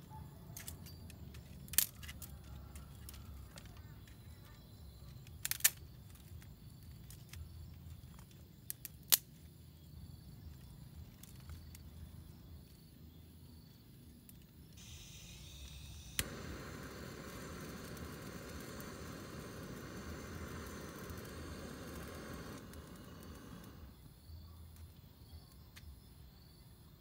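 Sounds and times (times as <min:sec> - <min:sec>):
torch flame hissing: 0:14.8 - 0:24.0
torch lighter clicking: 0:14.8 - 0:24.0.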